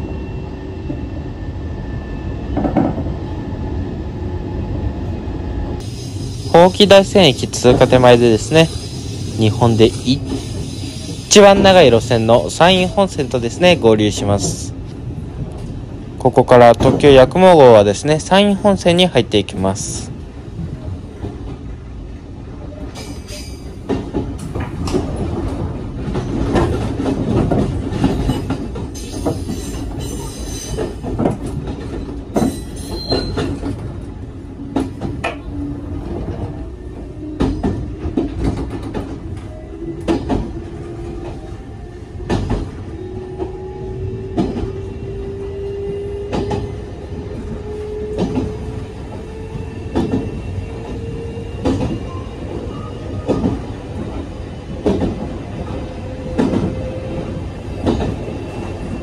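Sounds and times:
train cabin rumble: 5.1 - 59.0.

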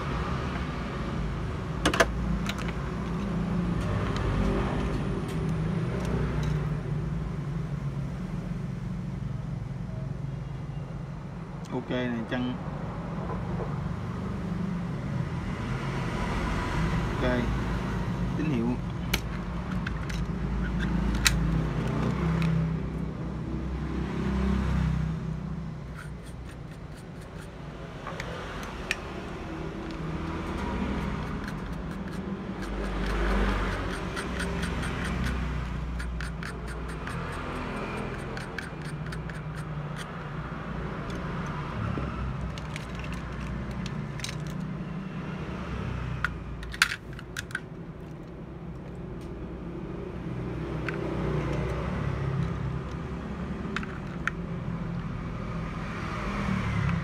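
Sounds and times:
road traffic rumble: 0.0 - 57.0
handling clicks and scrapes: 1.8 - 6.8, 18.9 - 22.6, 25.8 - 44.8, 46.2 - 49.4, 50.8 - 55.2
sharp clicks: 29.8 - 40.2.

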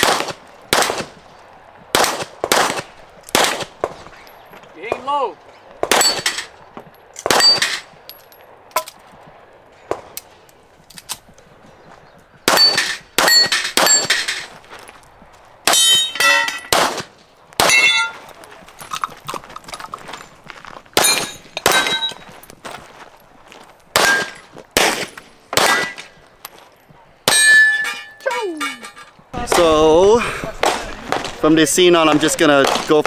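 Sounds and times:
gunshots: 0.0 - 1.2, 1.9 - 4.2, 5.8 - 6.6, 7.2 - 7.9, 12.4 - 14.5, 15.6 - 18.0, 23.9 - 26.1, 30.5 - 33.0
steel plate clanging: 6.0 - 6.5, 15.7 - 16.7, 17.7 - 18.3, 21.0 - 22.3, 27.3 - 29.2.

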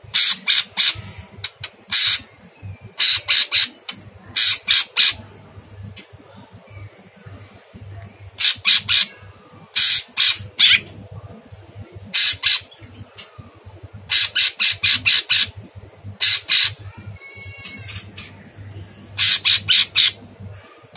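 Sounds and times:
bird giving harsh rasping calls: 0.1 - 2.3, 3.0 - 3.8, 4.4 - 5.2, 8.4 - 10.9, 12.1 - 12.8, 14.1 - 15.6, 16.2 - 16.8, 19.2 - 20.2.

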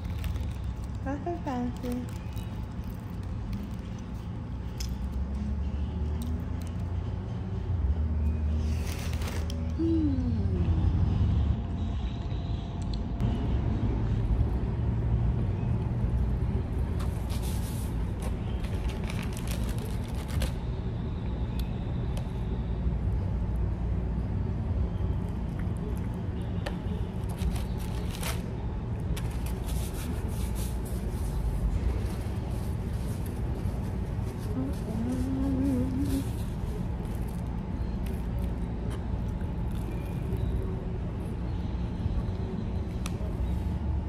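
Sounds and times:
food wrapper crackling: 0.0 - 5.0, 18.6 - 20.6.

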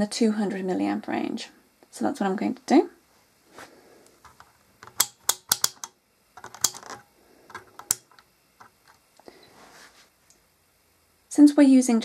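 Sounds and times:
handling of meter and leads: 4.0 - 9.3
rotary selector plastic clicks: 4.3 - 9.0.

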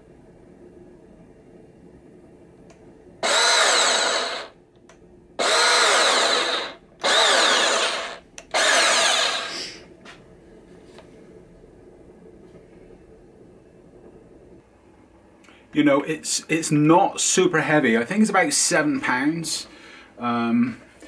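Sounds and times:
bandsaw motor running up: 3.2 - 4.6, 5.4 - 9.8.

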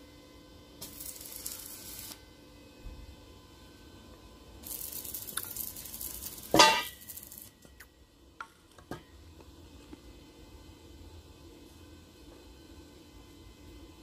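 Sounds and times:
metal clang with ring: 6.5 - 7.0.

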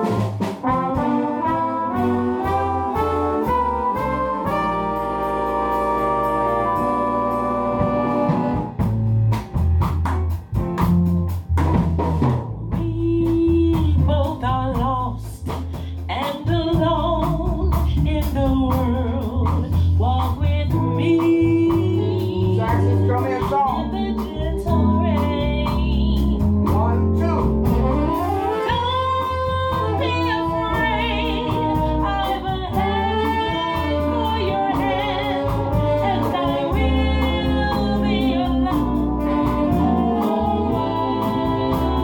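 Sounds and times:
bass: 0.0 - 42.0
drums: 0.0 - 42.0
woman singing into microphone: 12.7 - 26.5, 28.7 - 42.0.

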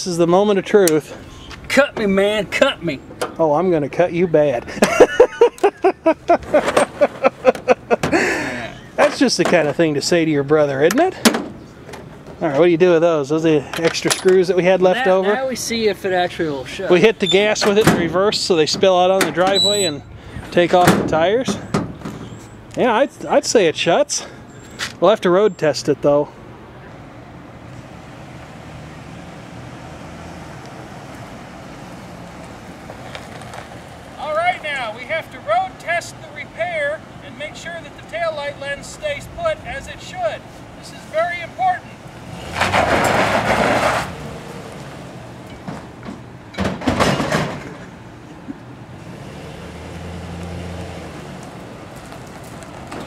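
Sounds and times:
truck engine and tyres: 0.0 - 53.0
pickup truck driving past: 27.2 - 34.9, 41.9 - 46.0, 47.4 - 53.0.

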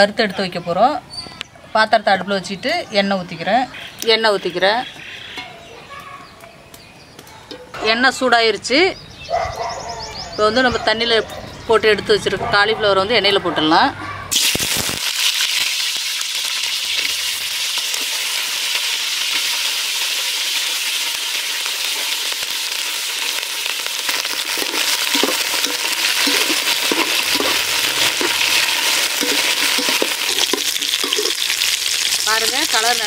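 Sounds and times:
cauliflower sizzling in hot oil: 14.3 - 33.0
spatula scraping and knocking: 24.4 - 31.5.

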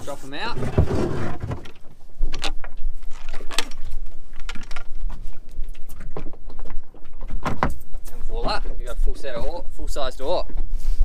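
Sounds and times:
wooden oars knocking on hull: 6.0 - 8.6.

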